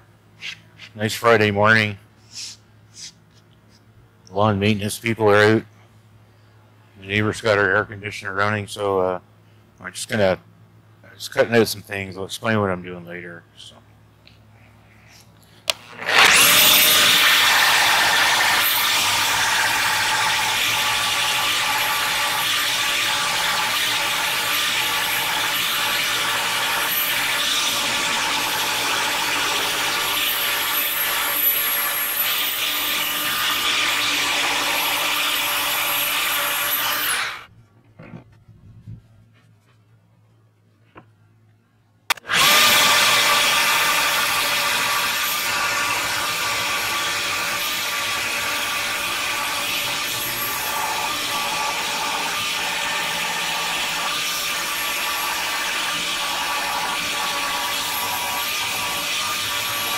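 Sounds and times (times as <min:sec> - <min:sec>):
jigsaw cutting plywood: 0:15.7 - 0:37.5, 0:42.1 - 0:59.9.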